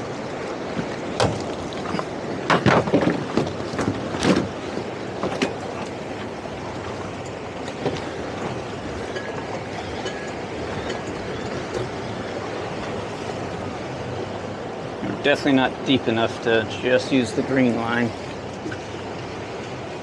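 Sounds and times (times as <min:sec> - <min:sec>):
rush of wind and water: 0:00.0 - 0:20.0
sharp knocks and thuds: 0:02.5 - 0:04.6.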